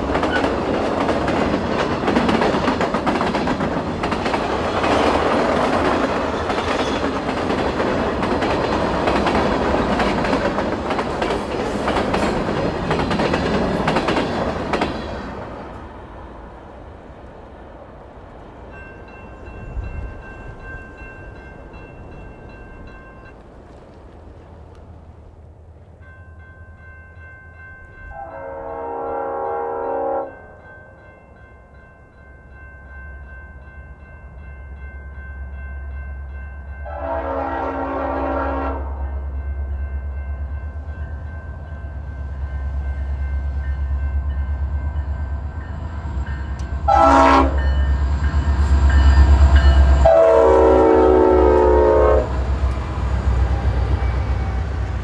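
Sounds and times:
locomotive air horn blasts: 0:28.1 - 0:30.4, 0:36.8 - 0:39.1, 0:46.9 - 0:47.7, 0:50.0 - 0:52.4.

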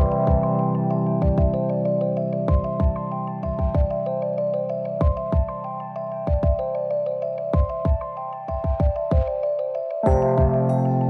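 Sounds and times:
held synth chords: 0:10.0 - 0:11.0
deep kick drum hits: 0:10.1 - 0:10.7.

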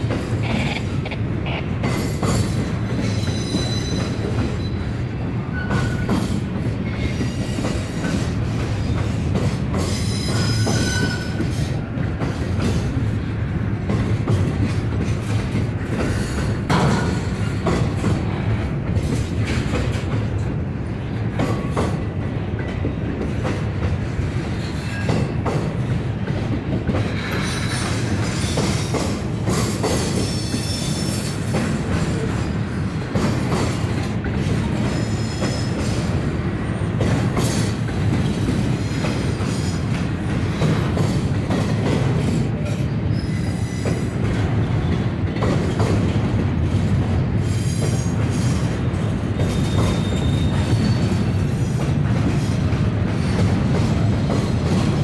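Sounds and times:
steel wheels clattering over rail joints: 0:00.0 - 0:55.0
train cars rumbling past: 0:00.0 - 0:55.0
high-pitched wheel squeals: 0:03.0 - 0:04.9, 0:09.9 - 0:11.4, 0:49.4 - 0:51.2.

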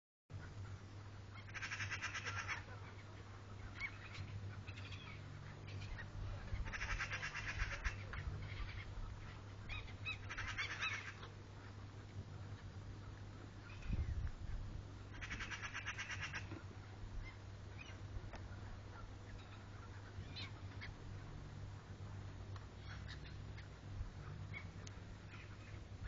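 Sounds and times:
steady low hum: 0:00.3 - 0:26.0
gulls squawking: 0:00.4 - 0:11.4, 0:15.1 - 0:21.0.

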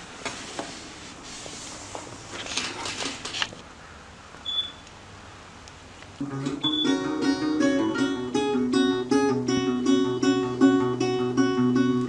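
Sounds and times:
acoustic guitar plucked notes: 0:06.2 - 0:12.0.

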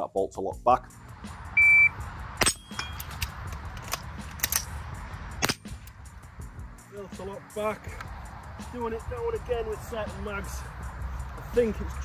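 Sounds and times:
shot timer beep: 0:01.6 - 0:01.9.

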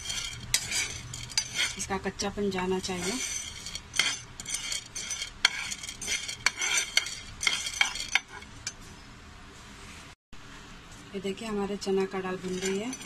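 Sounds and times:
dry lentils shifting: 0:00.0 - 0:02.0, 0:02.8 - 0:08.2
spatula scraping pan: 0:00.0 - 0:08.7, 0:12.4 - 0:13.0.

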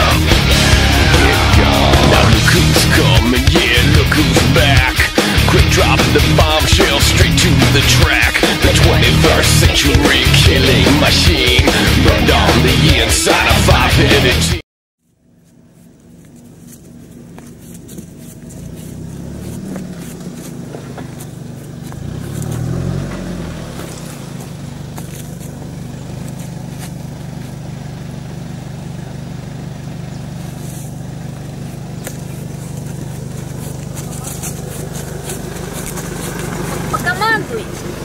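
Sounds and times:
off-road vehicle engine revving: 0:00.0 - 0:14.6, 0:16.2 - 0:38.0.

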